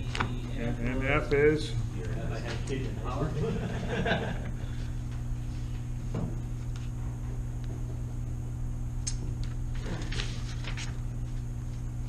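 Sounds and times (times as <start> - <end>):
low room hum: 0.0 - 12.0
paper rustling: 9.7 - 11.8.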